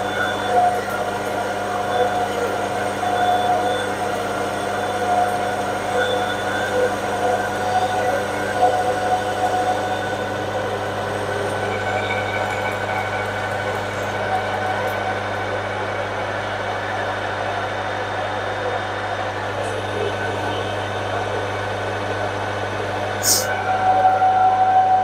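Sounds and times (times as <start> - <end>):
metal lathe cutting: 0.0 - 18.2.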